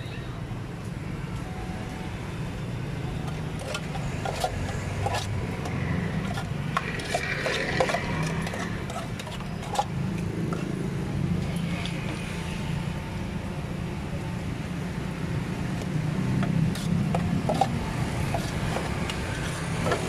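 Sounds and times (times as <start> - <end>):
metal spatula scraping saucepan: 3.3 - 10.7, 16.7 - 20.0.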